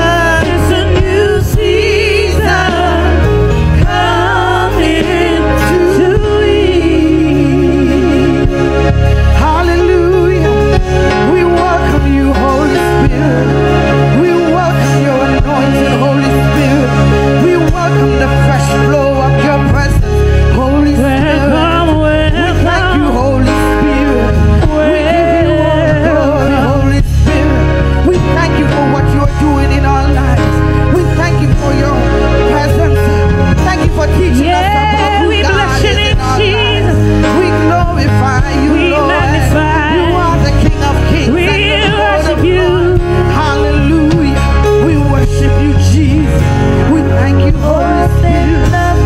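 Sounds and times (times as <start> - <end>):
woman singing into a microphone: 0.0 - 8.8, 20.5 - 27.6, 34.1 - 49.0
amplified band accompaniment: 0.0 - 49.0
keyboard: 0.0 - 49.0
steady bass: 0.0 - 49.0.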